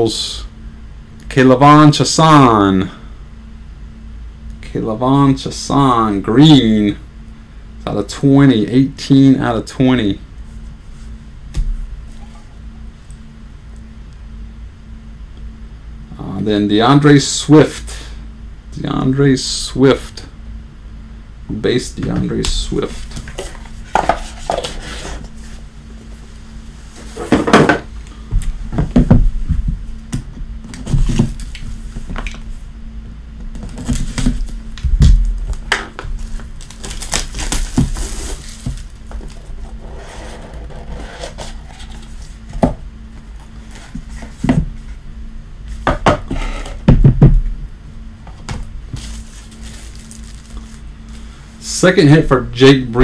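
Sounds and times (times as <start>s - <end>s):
faint hum: 0.0s - 53.0s
knocks and clicks handling boxes: 45.8s - 47.5s.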